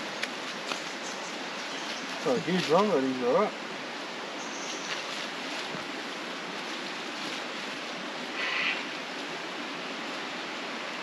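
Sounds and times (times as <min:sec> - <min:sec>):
creek water running over rocks: 0:00.0 - 0:11.0.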